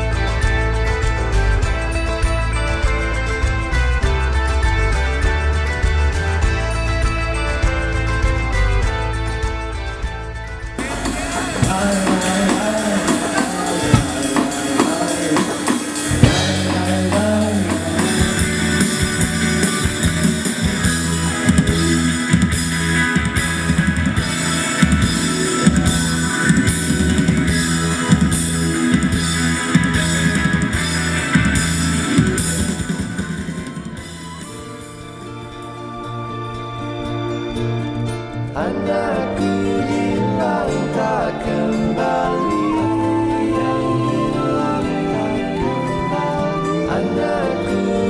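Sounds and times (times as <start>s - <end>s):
drum beat with cymbal hits: 0.0s - 35.2s
rock band playing: 0.0s - 48.0s.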